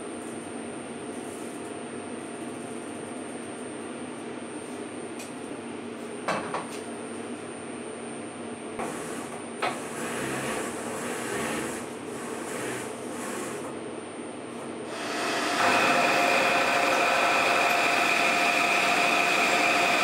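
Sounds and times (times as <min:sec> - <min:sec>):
milling machine humming: 0:08.8 - 0:13.8, 0:14.8 - 0:20.0.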